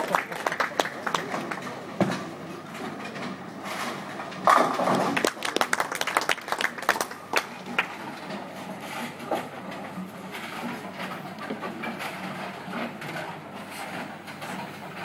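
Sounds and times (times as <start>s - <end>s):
bowling ball crashing into pins: 4.3s - 5.4s.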